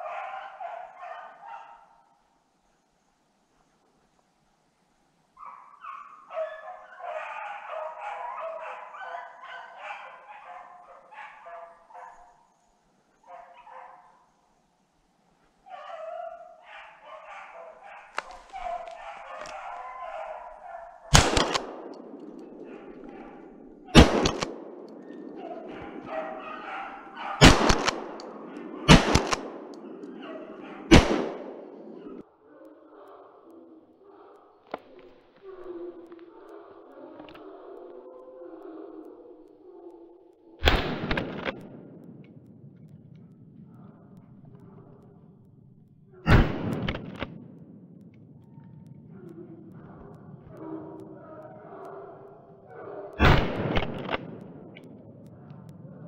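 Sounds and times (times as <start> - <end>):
dogs baying: 0.0 - 2.2, 5.4 - 14.3, 15.5 - 42.4, 48.4 - 56.0
gunshots: 21.1 - 32.2, 40.6 - 42.4, 46.3 - 47.8, 53.2 - 54.9.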